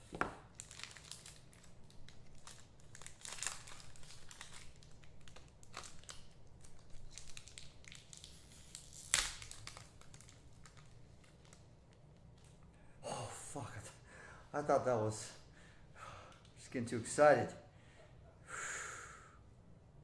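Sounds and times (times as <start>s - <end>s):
sharp plastic crackle: 0.2s - 12.6s
plastic packs crinkling: 0.4s - 12.6s.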